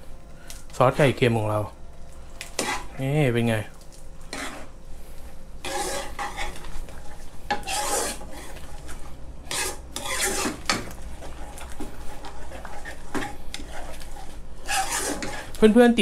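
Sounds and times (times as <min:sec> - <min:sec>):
metal ladle scraping frying pan: 0:02.6 - 0:02.9, 0:04.3 - 0:04.7, 0:05.6 - 0:15.6.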